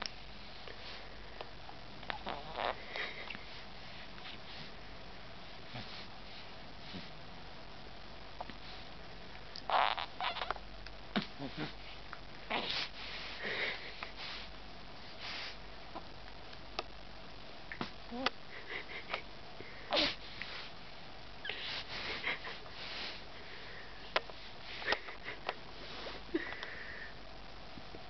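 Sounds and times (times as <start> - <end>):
baby snuffly breathing: 12.5 - 14.5, 19.9 - 20.7.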